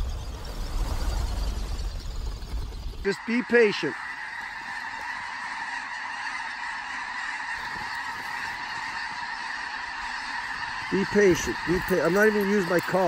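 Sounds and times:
flock of geese calling: 0:03.0 - 0:13.0.

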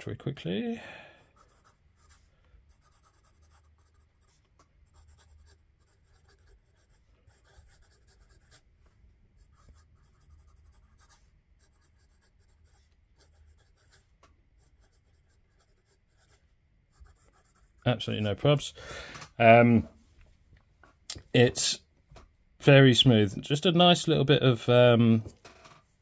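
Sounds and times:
pen scratching on paper: 0:01.3 - 0:08.7, 0:09.4 - 0:17.8.

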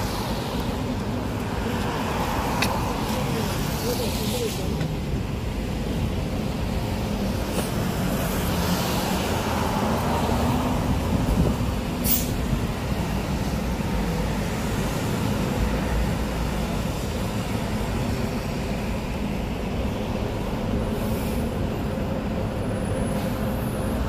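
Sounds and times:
traffic rumble: 0:00.0 - 0:24.0
brief sharp hiss: 0:12.0 - 0:12.4.

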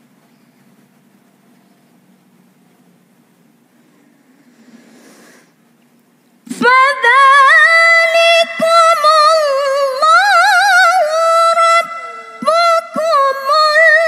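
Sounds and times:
woman reciting melodically: 0:06.5 - 0:14.0.

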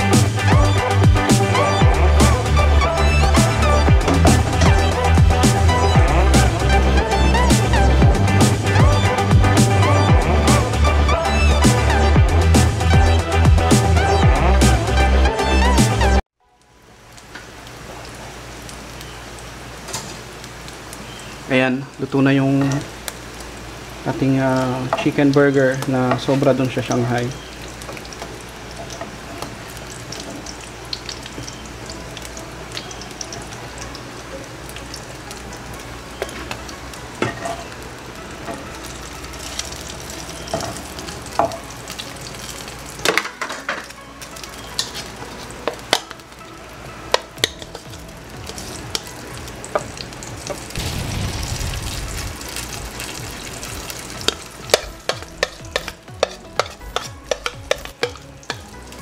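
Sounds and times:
food sizzling in oil: 0:16.7 - 0:59.0
oil popping: 0:47.1 - 0:59.0
low rumble: 0:50.8 - 0:55.4.

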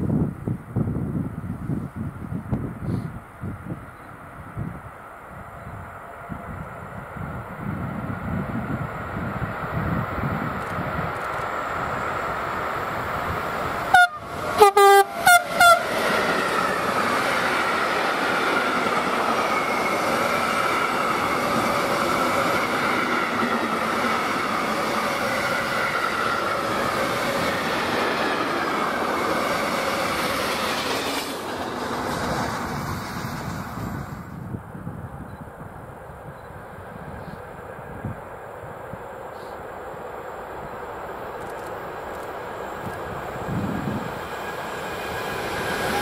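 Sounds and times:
train wheels rumbling on rail: 0:00.0 - 0:46.0
train horn blasts: 0:13.9 - 0:15.9.

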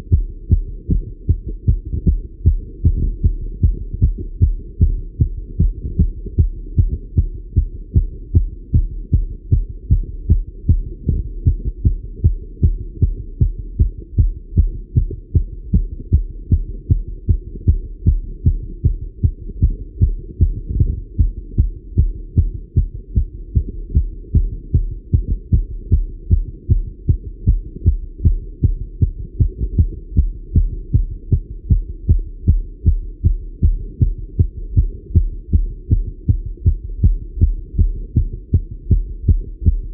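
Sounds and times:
fast heartbeat through stethoscope: 0:00.0 - 0:39.9.

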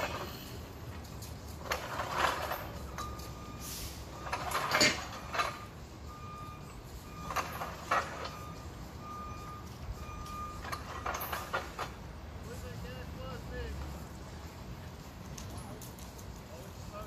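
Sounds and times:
sharp knocks and clanks: 0:04.1 - 0:05.8, 0:07.2 - 0:08.6, 0:10.2 - 0:12.2
faint high electronic beeps: 0:08.2 - 0:10.7.

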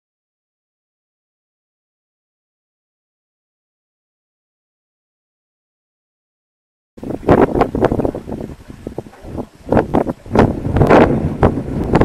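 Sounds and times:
wind buffeting microphone: 0:07.0 - 0:12.0.

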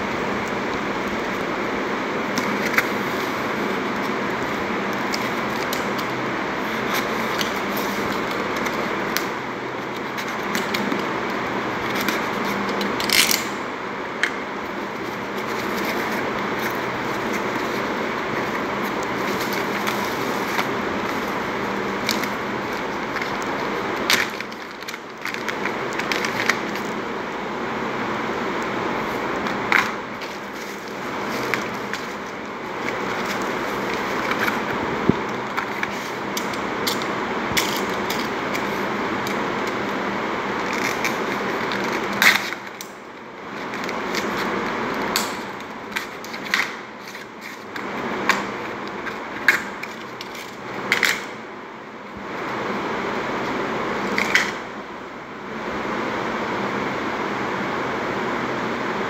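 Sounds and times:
bubble wrap handled: 0:14.5 - 0:27.2, 0:28.7 - 0:51.2.

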